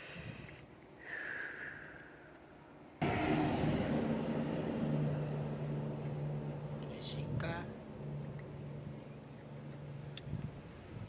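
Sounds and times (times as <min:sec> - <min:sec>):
engine humming: 0:02.7 - 0:11.0.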